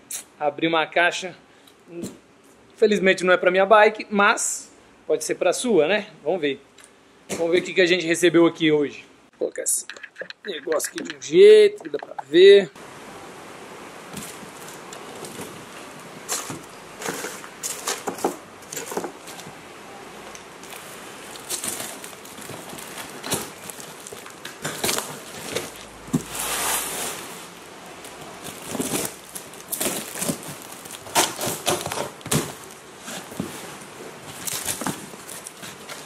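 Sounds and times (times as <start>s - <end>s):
blade slicing packing tape: 28.7s - 31.9s.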